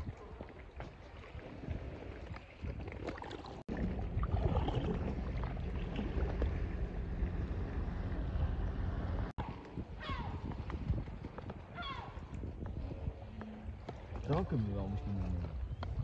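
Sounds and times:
water lapping against boat: 0.0s - 11.3s
wind rumbling on microphone: 0.0s - 16.0s.

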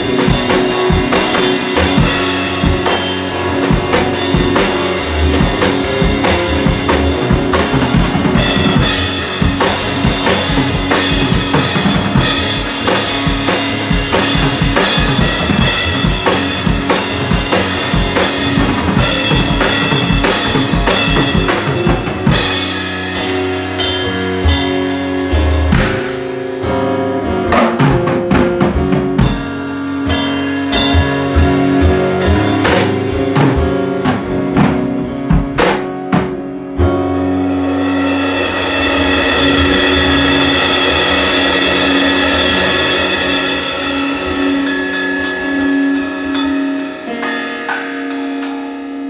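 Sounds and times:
ringing cymbals: 0.0s - 25.5s, 37.4s - 49.0s
drum kit beat: 0.0s - 49.0s
electric guitar chords: 0.0s - 49.0s.

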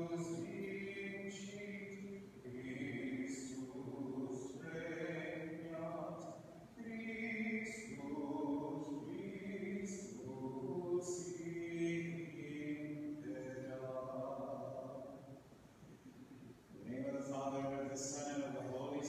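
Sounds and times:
slow hymn singing: 0.0s - 19.0s.

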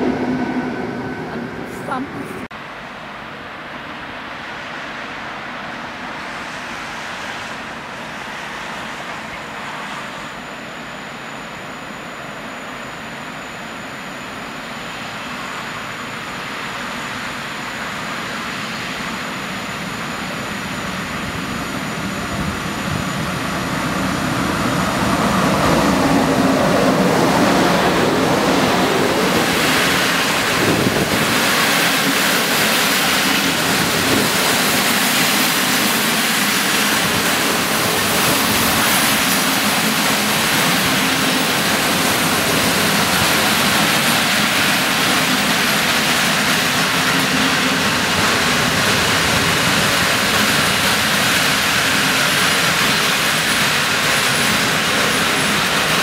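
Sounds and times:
locomotive whine: 0.0s - 56.0s
train wheels rumbling on rail: 12.2s - 56.0s.

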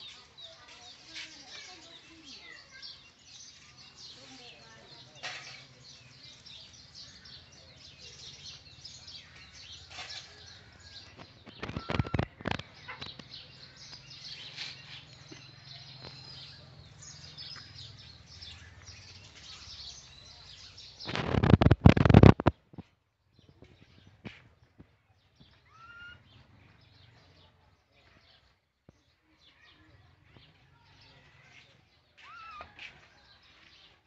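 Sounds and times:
birds chirping: 0.0s - 34.0s.

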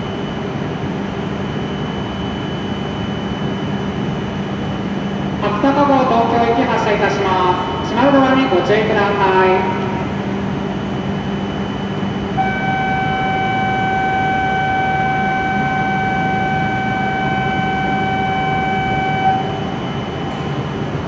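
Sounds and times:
steady background hum: 0.0s - 21.0s
electronic warning tone: 10.2s - 21.0s.

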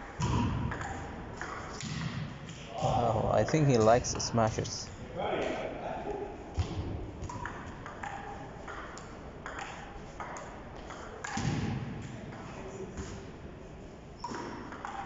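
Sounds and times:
table tennis ball hits: 0.2s - 2.2s, 6.6s - 12.4s.

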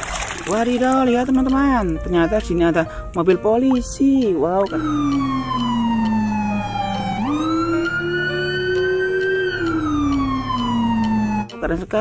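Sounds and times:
police siren wailing: 4.6s - 11.6s.

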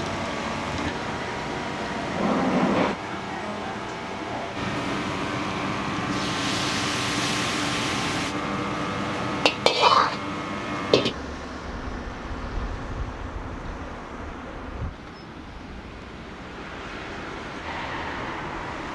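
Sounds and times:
steady kitchen hum: 0.0s - 14.7s
utensil clinking against a wok: 9.5s - 10.2s, 11.0s - 11.2s.

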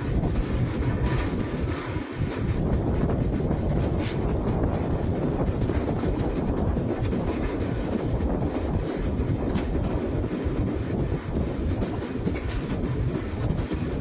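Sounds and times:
clacks over rail joints: 0.0s - 14.0s
train wheels rumbling on rails: 0.0s - 14.0s.

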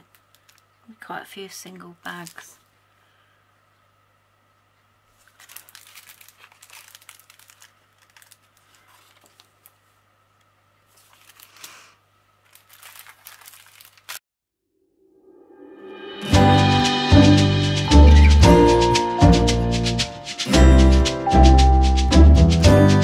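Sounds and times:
plastic bags crinkling: 0.0s - 0.7s, 5.1s - 9.9s, 10.9s - 14.2s.

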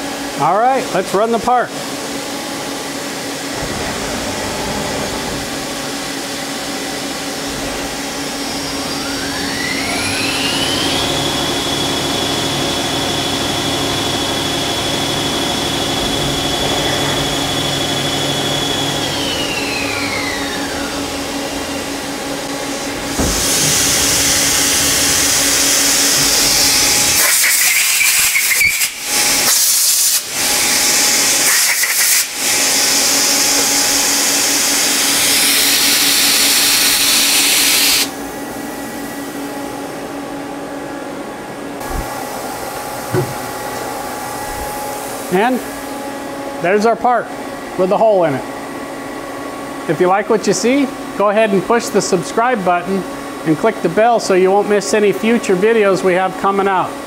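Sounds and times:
lathe machine hum: 1.7s - 27.8s, 28.9s - 31.5s, 32.2s - 57.0s
lathe whine: 1.8s - 57.0s
coolant hiss: 3.5s - 39.5s.

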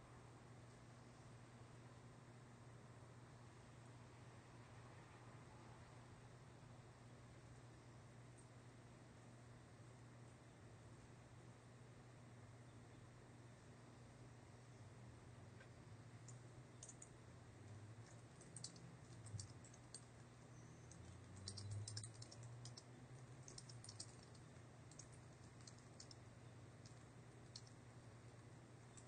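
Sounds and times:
low steady hum: 0.0s - 29.0s
typing on computer keyboard: 16.3s - 17.1s, 18.0s - 27.8s.

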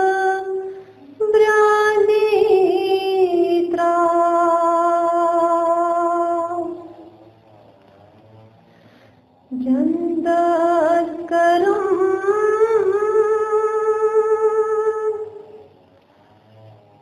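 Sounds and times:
person singing unaccompanied: 0.0s - 7.3s, 9.5s - 15.8s.

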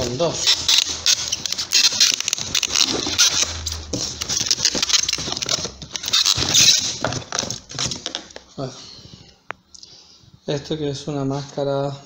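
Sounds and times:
packaging rustling and scraping: 0.0s - 9.3s.

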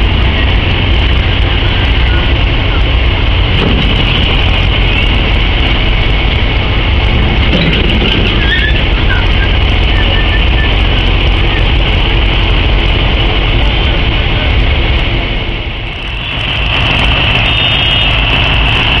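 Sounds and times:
freight train rumbling: 0.0s - 19.0s.

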